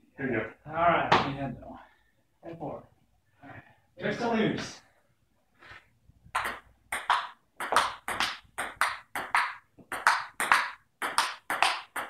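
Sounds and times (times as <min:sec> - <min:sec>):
ping-pong ball bouncing and struck: 0:06.4 - 0:12.0.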